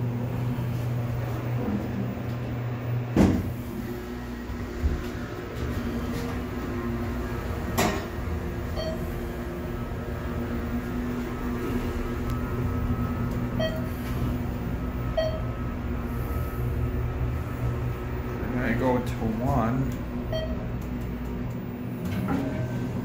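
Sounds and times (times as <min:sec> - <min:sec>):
elevator hum: 0:00.0 - 0:23.0
short high beeps: 0:13.6 - 0:13.9.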